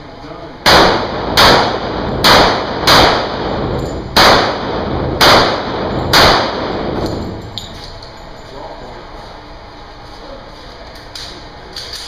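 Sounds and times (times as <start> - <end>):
pistol shots echoing indoors: 0.6 - 7.8.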